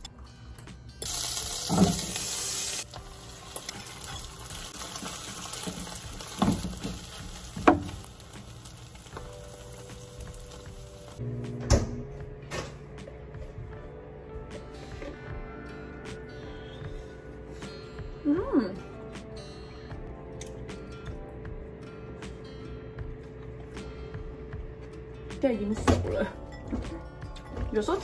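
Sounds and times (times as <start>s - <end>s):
egg sizzling in a pan: 1.0s - 11.2s.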